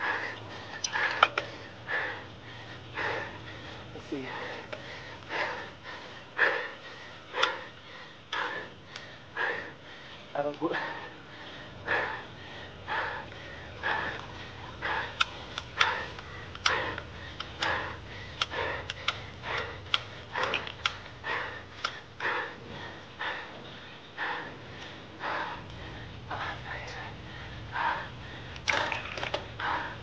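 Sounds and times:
hard rhythmic breathing: 0.0 - 30.0
steady low hum: 0.0 - 30.0
sharp ticks: 13.9 - 22.0.

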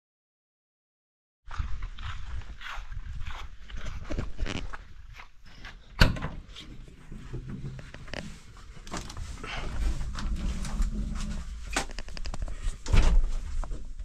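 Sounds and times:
objects clattering and knocking: 6.1 - 14.0.

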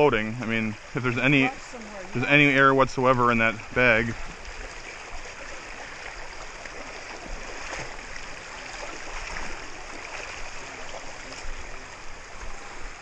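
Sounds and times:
creek water running over rocks: 0.0 - 13.0
splashing from wading: 3.4 - 13.0.

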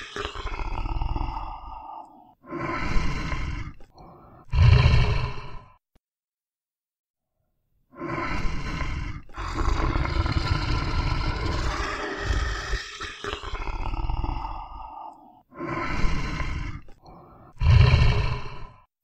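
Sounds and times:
tiger roaring and growling: 4.4 - 5.6, 8.1 - 16.9, 17.5 - 18.8.

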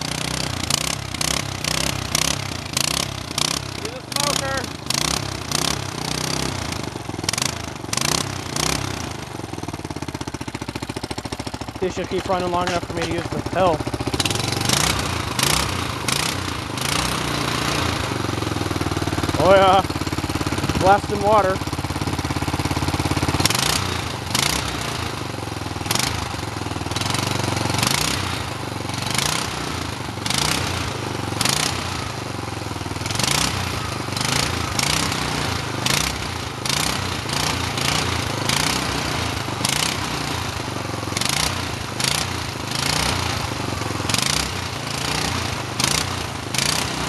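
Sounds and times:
exhaust crackles: 0.0 - 26.3
small engine running: 0.0 - 47.0.

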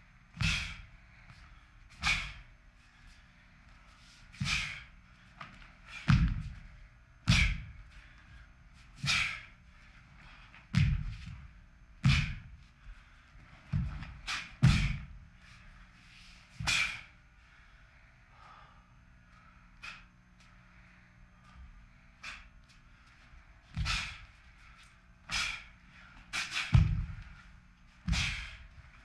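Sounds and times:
feet stamping on floor: 6.0 - 6.7, 10.7 - 12.6, 13.6 - 15.1, 26.7 - 27.4.

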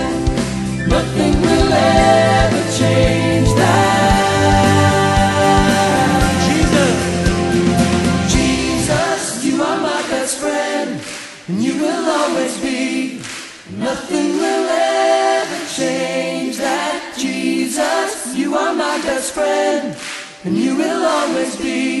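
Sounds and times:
band low accompaniment: 0.0 - 9.0
choir singing unaccompanied: 0.0 - 22.0.

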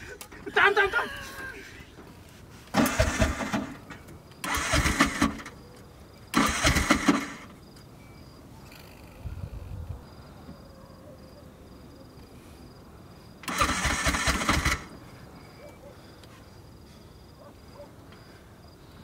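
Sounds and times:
small engine cranking: 2.7 - 5.6, 6.3 - 7.6, 13.4 - 15.0.

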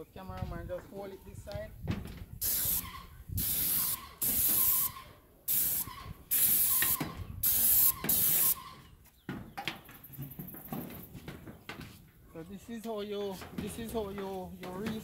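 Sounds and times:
spray gun hissing bursts: 2.4 - 8.6.

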